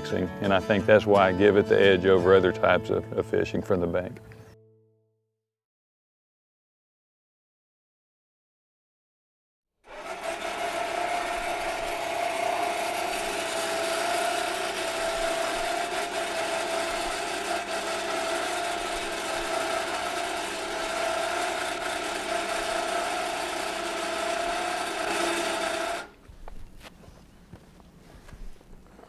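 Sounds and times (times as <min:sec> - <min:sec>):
electric motor whining: 0:09.9 - 0:26.2.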